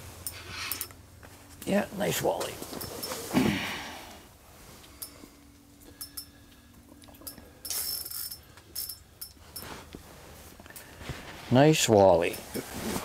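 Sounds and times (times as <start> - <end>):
fishing reel clicks and rattles: 7.2 - 9.4.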